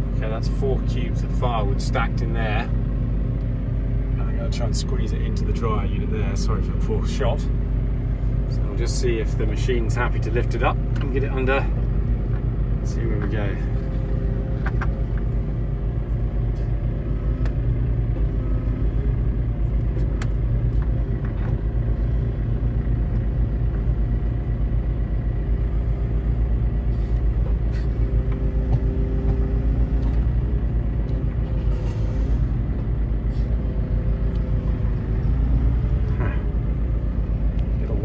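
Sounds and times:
loading machine engine running: 0:00.0 - 0:38.0.

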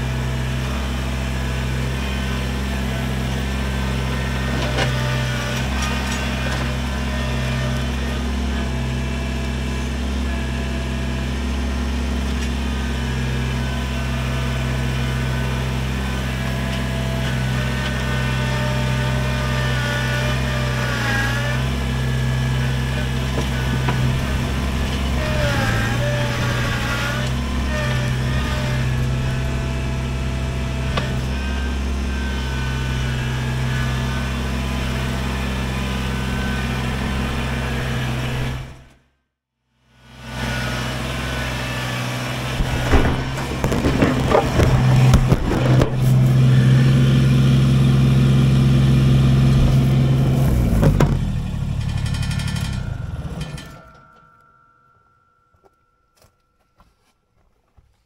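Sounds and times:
tractor diesel engine running: 0:00.0 - 0:39.0, 0:39.9 - 0:54.8.

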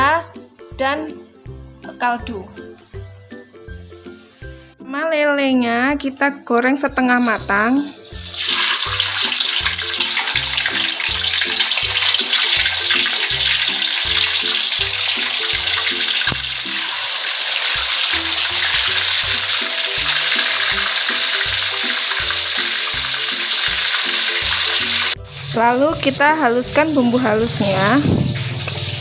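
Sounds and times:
background music with steady beat: 0:00.0 - 0:29.0
fish sizzling in hot oil: 0:07.9 - 0:29.0.

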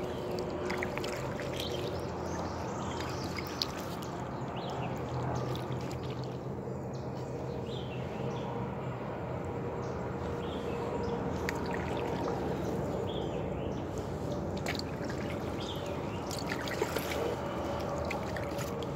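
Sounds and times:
water dripping off paddle: 0:14.6 - 0:18.9.

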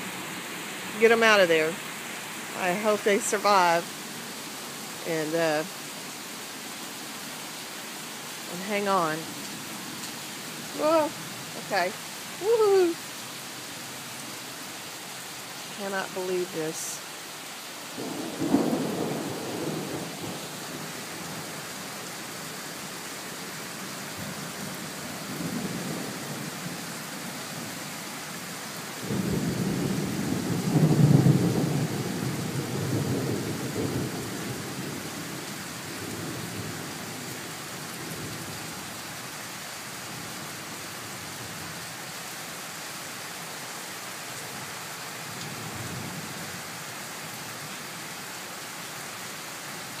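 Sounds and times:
heavy rain falling: 0:00.0 - 0:50.0
rolling thunder: 0:18.0 - 0:21.5, 0:29.0 - 0:35.1.

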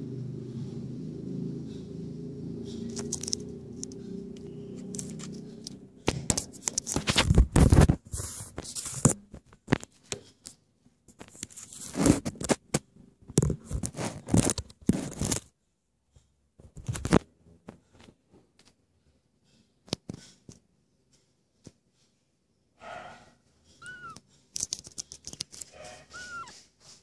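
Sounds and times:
scraping against microphone: 0:04.8 - 0:10.5, 0:11.2 - 0:12.8, 0:13.4 - 0:15.5.

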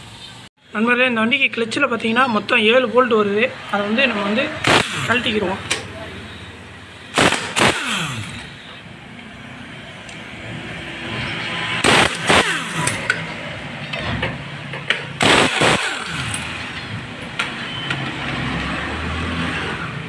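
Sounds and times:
impact wrench whirring: 0:04.6 - 0:08.9, 0:11.8 - 0:13.4, 0:15.2 - 0:16.8.

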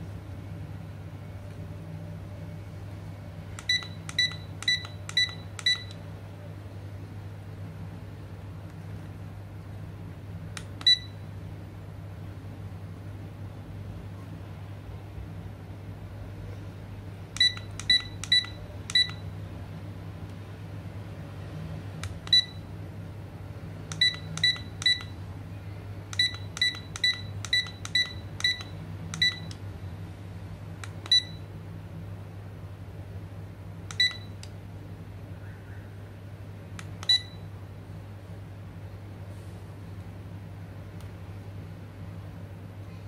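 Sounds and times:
low steady hum: 0:00.0 - 0:43.0
alarm clock short beeps: 0:03.6 - 0:06.0, 0:17.4 - 0:19.2, 0:24.0 - 0:25.1, 0:26.2 - 0:29.5.

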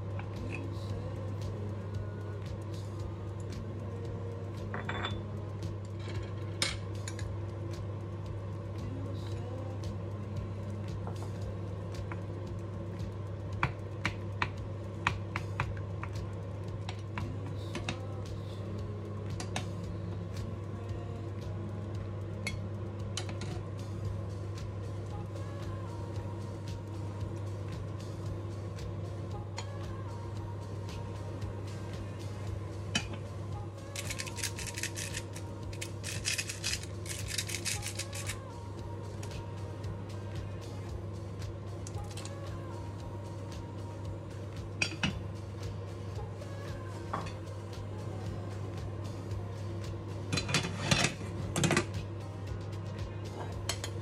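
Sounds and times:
steady low hum: 0:00.0 - 0:54.0
spoons clicking against a saucepan: 0:44.8 - 0:45.2, 0:53.7 - 0:54.0.

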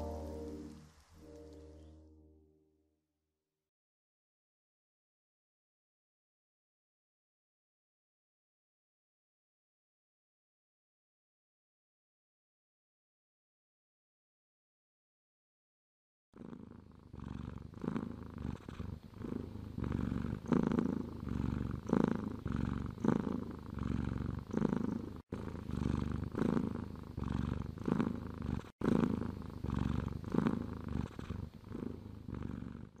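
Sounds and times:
cat purring: 0:00.0 - 0:01.9, 0:16.4 - 0:33.0.

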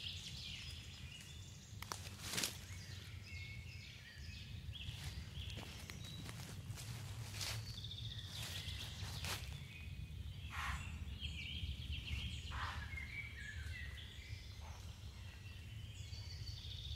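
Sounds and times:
birds chirping and trilling: 0:00.0 - 0:16.9
leaves rustling: 0:00.1 - 0:03.2, 0:04.7 - 0:09.8.

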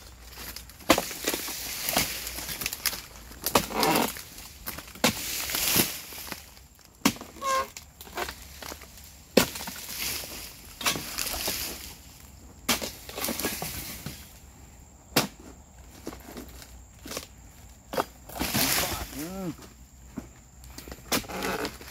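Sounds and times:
chisel chopping into palm: 0:03.4 - 0:04.1, 0:15.1 - 0:15.4.

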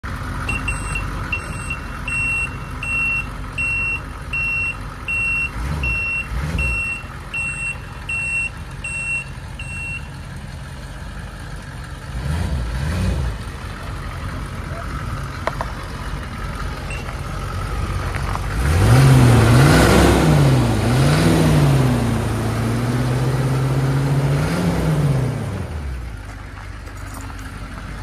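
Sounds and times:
diesel truck engine rumble: 0:00.0 - 0:28.0
backup alarm beeping: 0:00.5 - 0:10.1, 0:16.9 - 0:17.1.

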